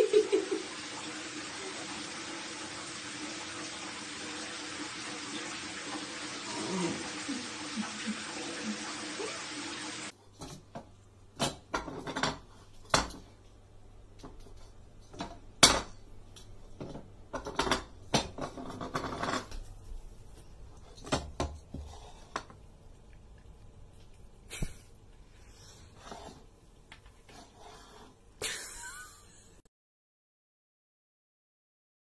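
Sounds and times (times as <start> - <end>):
ceramic bowl scraping on wooden floor: 17.4 - 19.7.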